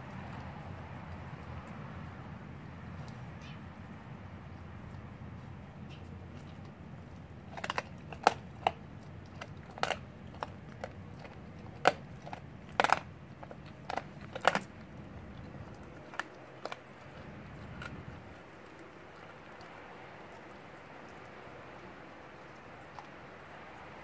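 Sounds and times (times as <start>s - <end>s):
dog chewing bones: 4.8s - 21.8s
bones cracking and crunching: 6.4s - 18.5s.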